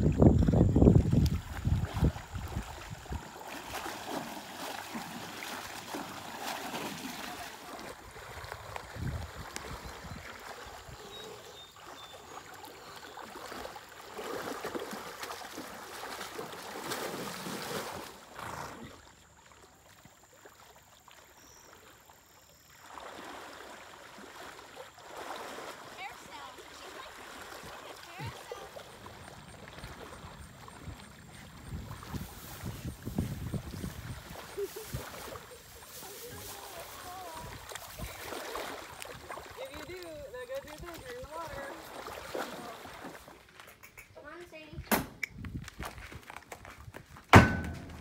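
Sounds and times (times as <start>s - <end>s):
water sloshing: 0.0s - 44.4s, 47.4s - 48.0s.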